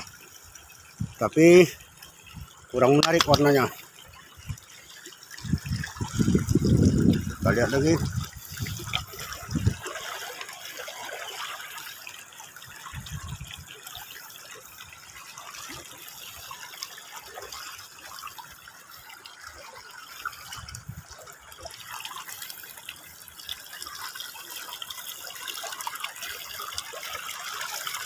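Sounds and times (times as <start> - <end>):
feet wading through water: 0.0 - 28.0
stream trickling over pebbles: 0.0 - 28.0.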